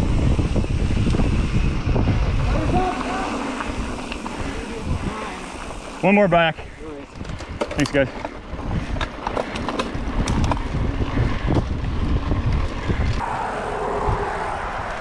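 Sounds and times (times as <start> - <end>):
wind on microphone: 0.0 - 5.3, 9.9 - 15.0
bike tyre rumble on dirt: 0.0 - 15.0
bike rattling and knocking: 7.1 - 13.1.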